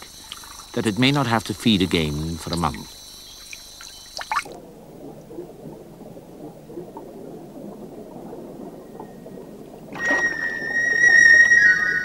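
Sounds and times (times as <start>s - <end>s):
underwater churning and bubbling: 0.0s - 12.0s.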